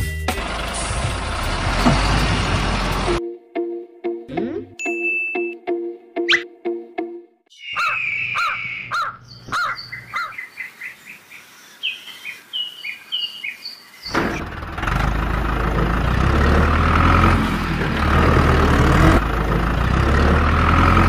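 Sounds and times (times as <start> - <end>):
tractor engine idling: 0.3 - 3.2, 14.1 - 21.0
birds chirping: 7.5 - 14.4.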